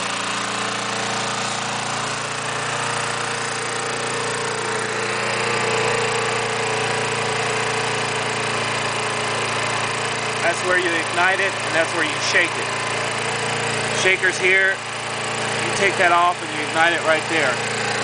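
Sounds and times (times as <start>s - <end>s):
lawn mower engine running: 0.0s - 18.0s.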